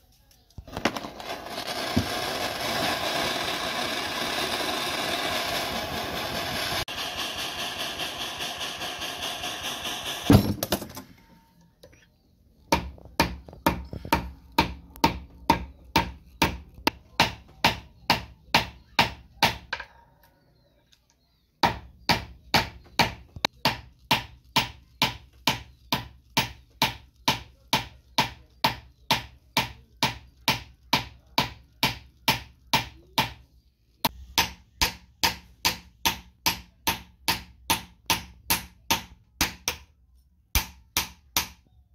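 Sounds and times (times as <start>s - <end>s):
gas torch blowing: 1.0s - 10.3s
loud thump: 10.3s - 10.9s.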